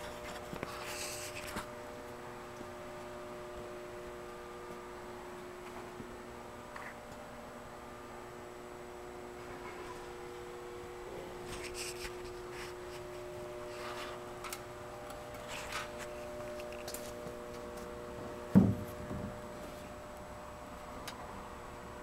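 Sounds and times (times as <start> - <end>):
hum of held tones: 0.0 - 22.0
faint rustling handling noises: 11.4 - 18.0
dull thump: 18.5 - 19.3.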